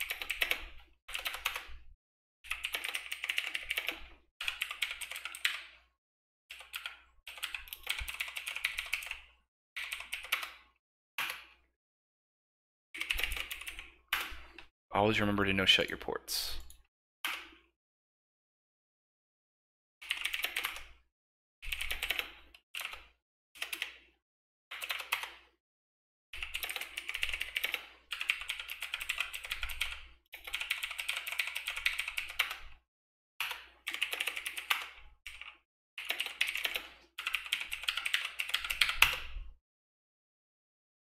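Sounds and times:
typing on computer keyboard: 0.0s - 1.7s, 2.5s - 5.9s, 6.5s - 11.6s, 13.0s - 14.6s, 20.0s - 21.0s, 21.6s - 24.1s, 24.7s - 25.5s, 26.4s - 32.7s, 33.4s - 39.4s.

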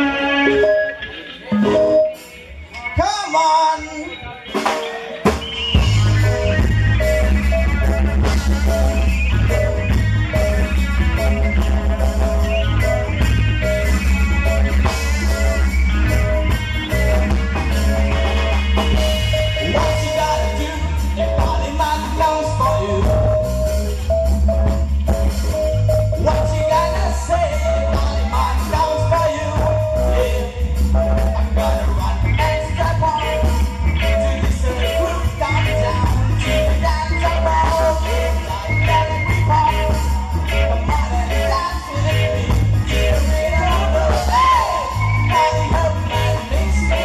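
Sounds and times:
live rock band playing: 0.0s - 47.0s
heavy booming bass: 5.7s - 47.0s
person singing: 18.2s - 24.3s, 25.6s - 47.0s.

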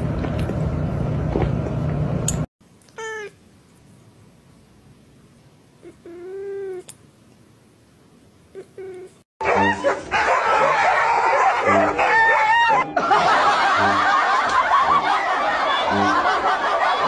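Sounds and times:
cat chirp: 2.9s - 3.4s, 5.8s - 6.9s
cat meowing: 2.9s - 3.4s, 5.8s - 6.9s.

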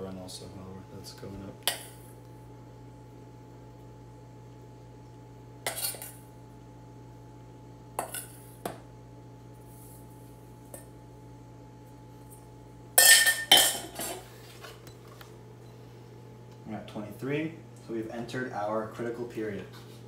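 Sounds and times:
metal spoon scraping steel bowl: 5.7s - 6.2s
bowl clattering: 13.0s - 14.3s.

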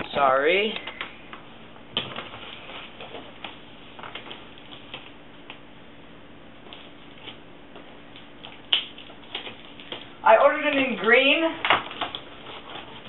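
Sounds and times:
cardboard and packaging rustling: 2.0s - 5.2s, 11.0s - 13.0s.

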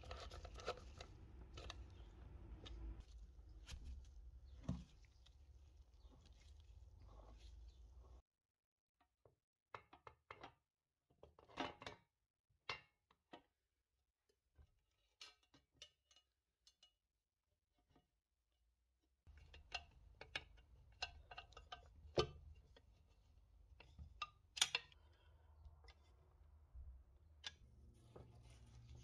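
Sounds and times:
metal parts clicking and tapping: 23.8s - 25.0s.

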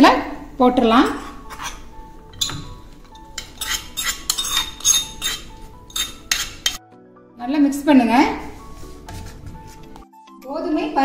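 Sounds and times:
steel spoon clinking in pan: 2.3s - 6.8s.

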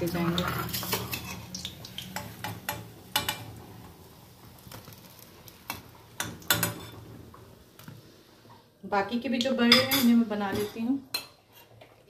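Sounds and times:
frying oil sizzling: 0.0s - 9.1s.

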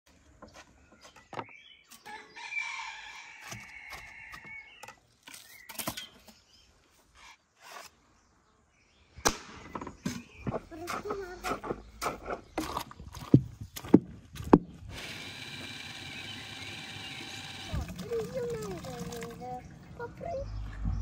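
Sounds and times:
rooster crowing: 2.1s - 4.7s.

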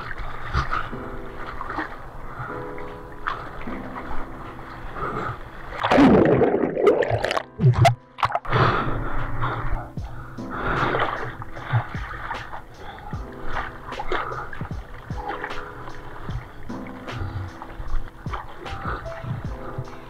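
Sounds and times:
music: 0.0s - 20.0s
seawater rushing and splashing: 9.5s - 20.0s.

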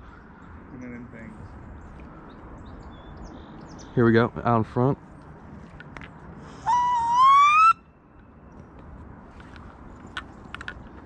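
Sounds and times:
rising bird call: 6.5s - 8.0s.

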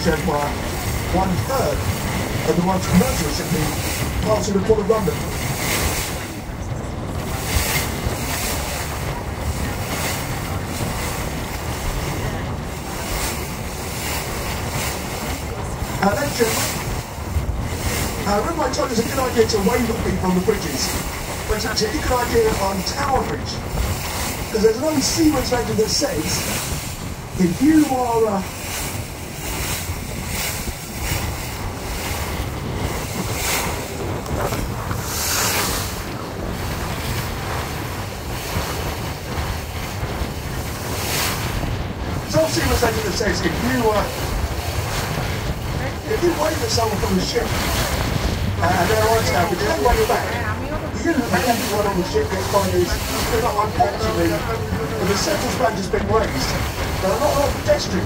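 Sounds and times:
boat running noise: 0.0s - 58.0s
water rushing: 0.0s - 58.0s
wind buffeting microphone: 0.0s - 58.0s.

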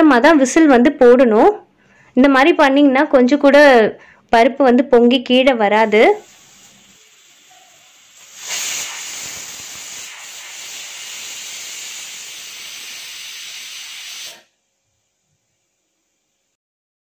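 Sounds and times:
pressure cooker steam hissing: 5.6s - 16.6s.

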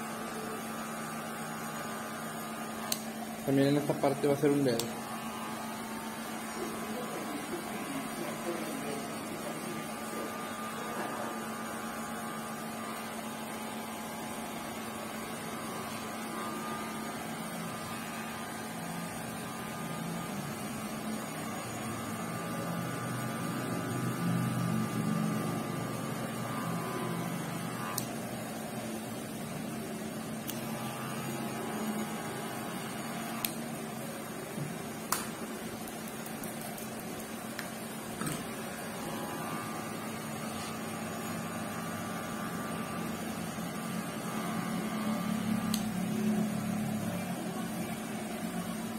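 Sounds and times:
electric hair clippers buzzing: 0.0s - 47.3s.

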